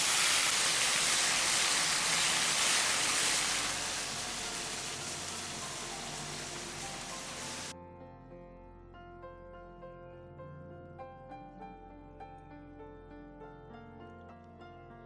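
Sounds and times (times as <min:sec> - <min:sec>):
vegetables sizzling in a frying pan: 0:00.0 - 0:07.7
soft background music: 0:03.7 - 0:15.0.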